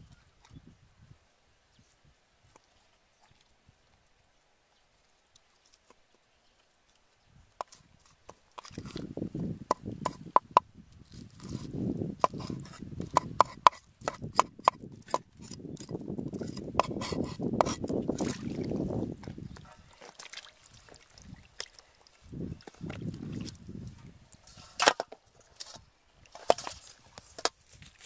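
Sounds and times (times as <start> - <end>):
knife scraping fish scales: 11.1 - 17.9.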